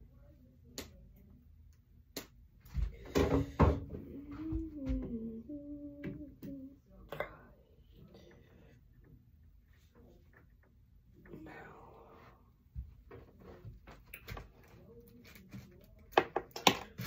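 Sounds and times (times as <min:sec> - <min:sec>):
person humming: 0:03.9 - 0:07.6.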